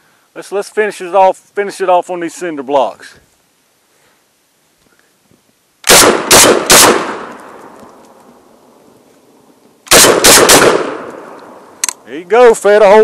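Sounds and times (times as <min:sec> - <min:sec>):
shotgun shots: 0:05.8 - 0:07.4, 0:09.9 - 0:11.3.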